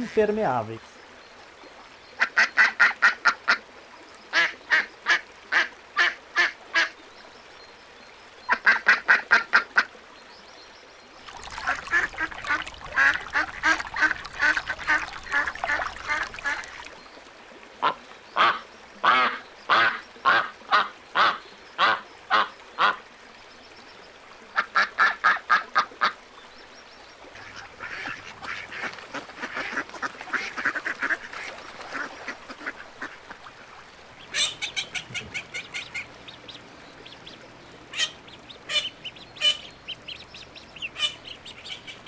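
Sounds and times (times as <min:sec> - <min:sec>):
ducks quacking: 0:11.4 - 0:16.9, 0:27.3 - 0:42.0.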